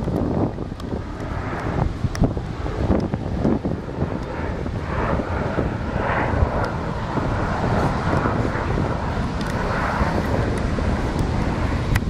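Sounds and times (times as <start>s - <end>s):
jet aircraft roaring overhead: 0.0s - 12.0s
wind buffeting microphone: 0.0s - 12.0s.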